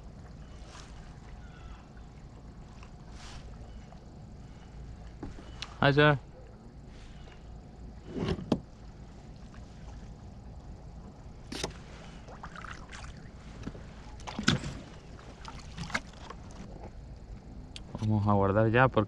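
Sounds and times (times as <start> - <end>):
steady low rumble: 0.0 - 19.0
knocks and bumps in boat: 8.0 - 8.7, 13.6 - 17.0.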